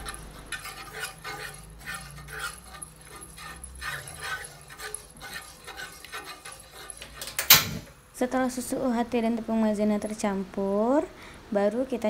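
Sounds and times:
spoon scraping a frying pan: 0:00.0 - 0:07.9.

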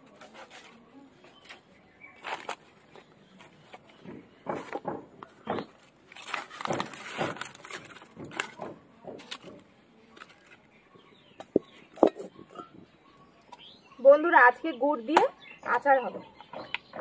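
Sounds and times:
leaves and sticks crackling in fire: 0:05.7 - 0:10.7.

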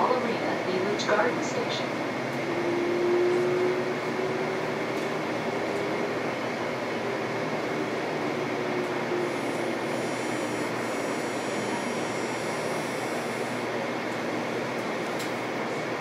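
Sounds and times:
light rail train running: 0:00.0 - 0:16.0
faint high whine: 0:09.1 - 0:13.7.

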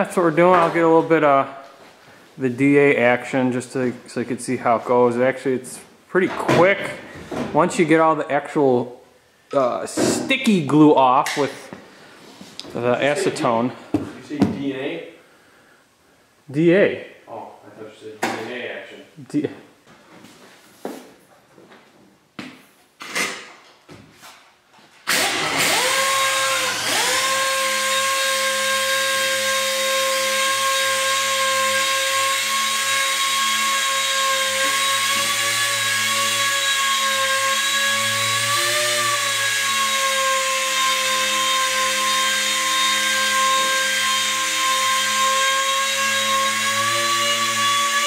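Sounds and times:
orbital sander whining: 0:25.1 - 0:48.0.

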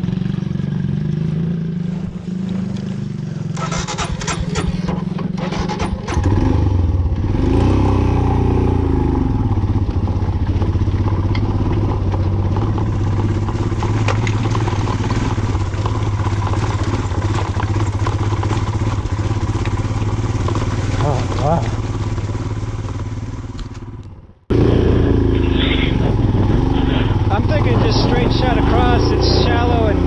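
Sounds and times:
motorcycle engine running: 0:00.0 - 0:30.0
sharp clicks and clatter: 0:03.6 - 0:06.4, 0:10.4 - 0:24.2.

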